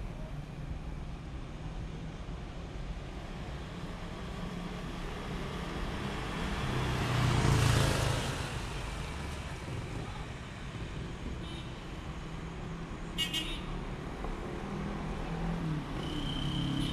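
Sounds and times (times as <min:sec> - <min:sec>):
vehicle passing by: 0:05.0 - 0:09.9.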